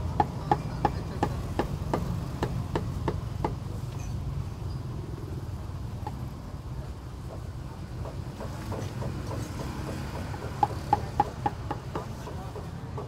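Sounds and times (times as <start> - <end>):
cleaver chopping on a block: 0.0 - 3.6, 7.3 - 13.0
low hum of street noise: 0.0 - 13.0.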